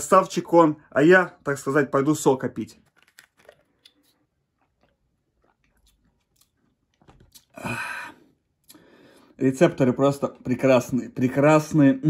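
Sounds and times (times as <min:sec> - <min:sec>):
slurping and gulping: 0:02.8 - 0:08.8.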